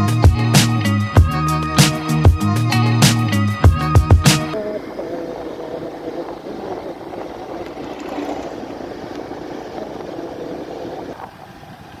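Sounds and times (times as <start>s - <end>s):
wind noise on microphone: 3.7s - 12.0s
motorcycle engine running: 4.6s - 12.0s.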